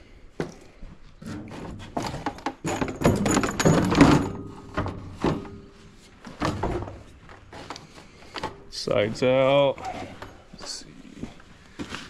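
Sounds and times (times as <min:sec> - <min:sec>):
plastic panels knocking and rattling: 0:01.4 - 0:07.7.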